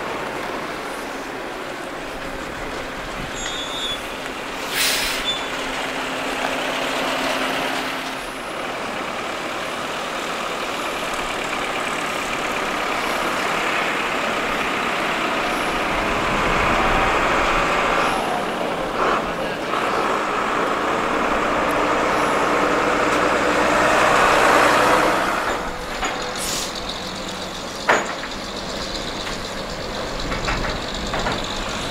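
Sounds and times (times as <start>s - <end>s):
heavy truck engine: 0.0s - 31.9s
vehicle engines driving past: 0.0s - 31.9s
sharp hiss: 3.4s - 5.7s, 26.3s - 27.8s.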